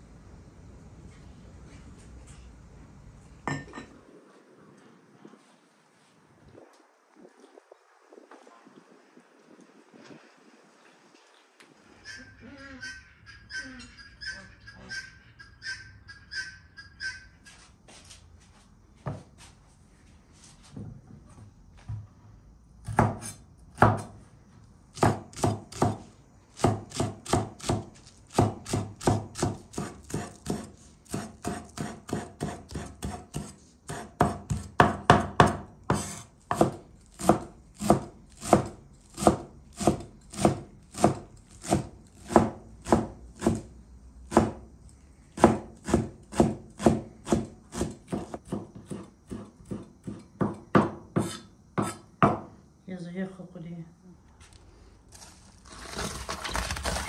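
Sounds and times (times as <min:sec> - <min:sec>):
knife chopping on wooden board: 0:22.8 - 0:24.1, 0:25.0 - 0:26.0, 0:26.6 - 0:43.6, 0:44.3 - 0:44.6, 0:45.4 - 0:52.5.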